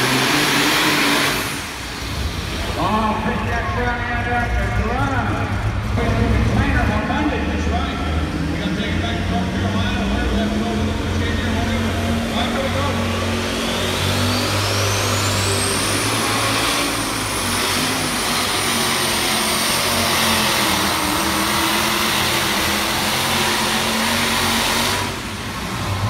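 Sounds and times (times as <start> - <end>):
tractor engine at full throttle: 0.0 - 26.0.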